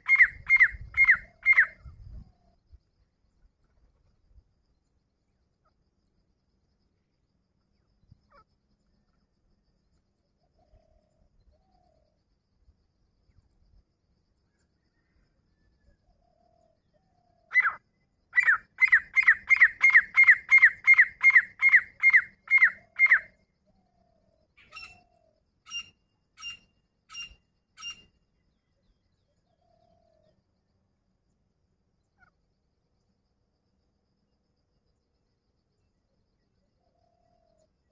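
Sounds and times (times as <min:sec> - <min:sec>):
francolin calling: 0:00.0 - 0:02.6, 0:16.3 - 0:30.3.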